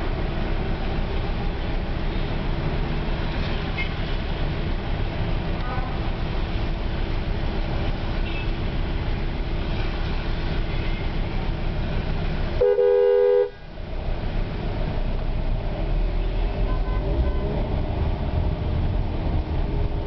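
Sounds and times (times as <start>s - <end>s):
road rumble inside car: 0.0s - 20.0s
car horn blast: 12.6s - 13.6s.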